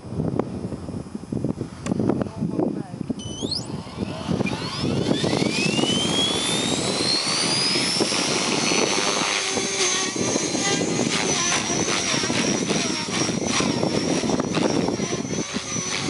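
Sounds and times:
quick rising chirps: 0:03.2 - 0:08.8
electric motor whine rising: 0:03.2 - 0:16.0
rotor rushing: 0:03.2 - 0:16.0.

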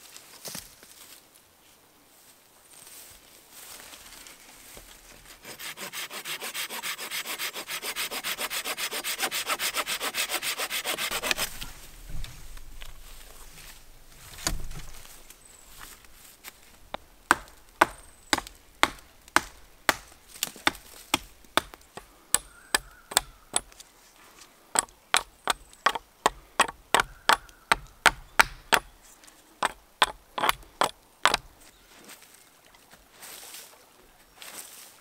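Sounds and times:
hand tool striking repeatedly: 0:16.9 - 0:23.7, 0:24.8 - 0:28.9, 0:29.6 - 0:31.5.

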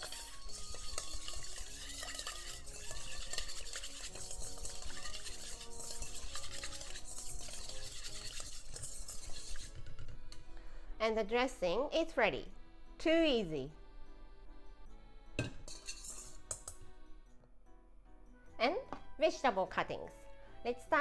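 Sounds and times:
whisk beating in metal bowl: 0:00.0 - 0:10.0, 0:15.7 - 0:16.8.

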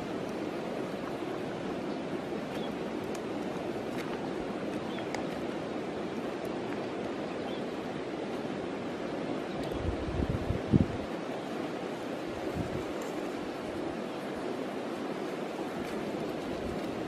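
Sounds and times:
river water rushing: 0:00.0 - 0:17.0.

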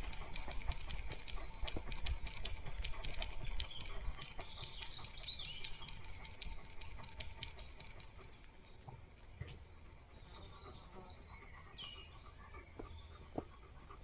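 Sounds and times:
low rumble of movement: 0:00.0 - 0:10.3
dog paws on dirt path: 0:00.0 - 0:10.8, 0:11.9 - 0:14.0.

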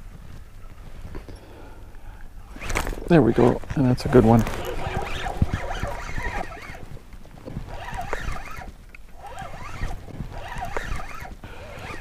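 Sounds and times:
fishing rod and reel handling: 0:02.4 - 0:12.0
animal chirping calls: 0:04.0 - 0:06.9.

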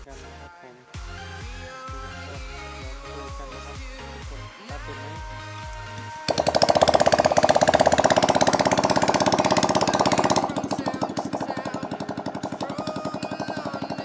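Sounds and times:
scooter engine starting and running: 0:06.3 - 0:14.0.

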